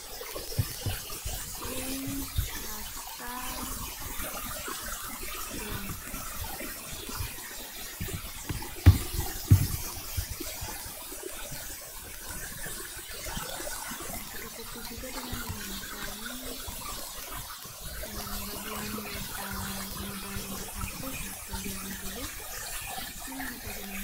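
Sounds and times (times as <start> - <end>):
dull thumps: 8.0 - 10.0.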